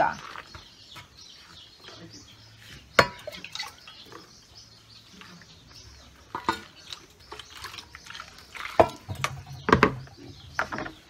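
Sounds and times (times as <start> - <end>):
liquid soap sloshing and dripping: 3.0 - 4.2, 6.2 - 11.0
plastic basin knocks: 8.8 - 10.9.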